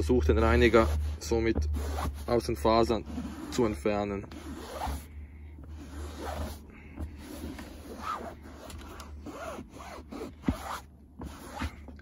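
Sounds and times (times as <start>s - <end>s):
cloth rubbing fabric seat: 0.4s - 12.0s.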